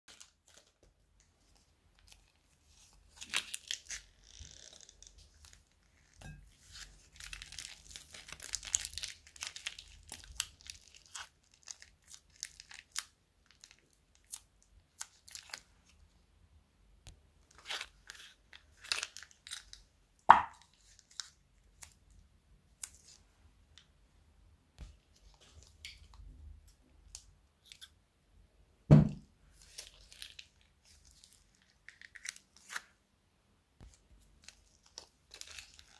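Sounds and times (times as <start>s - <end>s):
plastic bags crinkling and tearing: 0.1s - 0.9s, 1.9s - 5.8s, 6.6s - 15.7s, 17.5s - 19.8s, 29.6s - 32.9s, 33.8s - 35.9s
small crackles and rustles: 0.1s - 16.2s, 24.8s - 28.0s, 29.5s - 33.0s, 33.8s - 35.9s.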